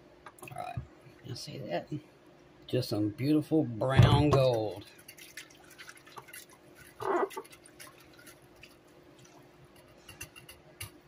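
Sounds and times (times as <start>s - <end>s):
faint steady hum: 0.0s - 11.0s
light liquid splashing: 4.4s - 9.5s
whisk ticking against crock: 4.4s - 11.0s.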